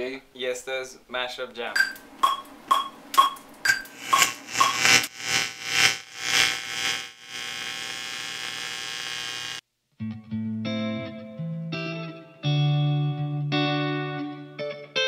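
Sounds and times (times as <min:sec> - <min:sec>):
steady buzzing hum: 0:01.7 - 0:09.6
short pinging tones: 0:01.8 - 0:05.0.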